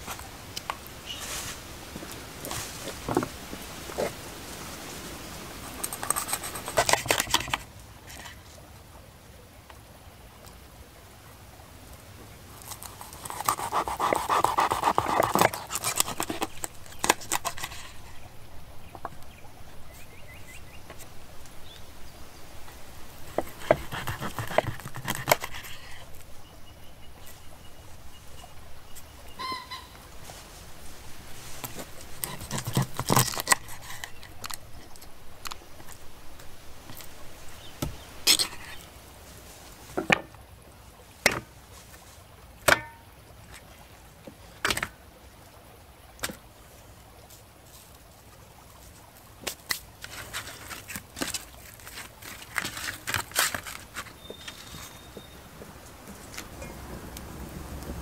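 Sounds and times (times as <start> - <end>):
knife scraping fish scales: 5.7 - 7.6, 12.6 - 18.1, 23.3 - 26.0, 32.1 - 34.6
knife cutting fish: 12.7 - 17.8, 23.4 - 25.7.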